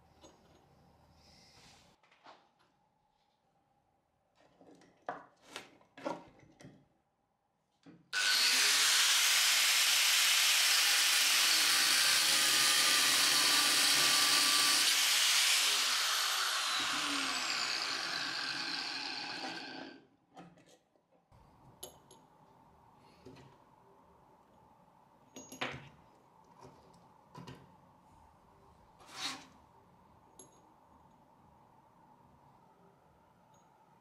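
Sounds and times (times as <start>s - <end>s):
angle grinder cutting steel: 8.2s - 20.0s.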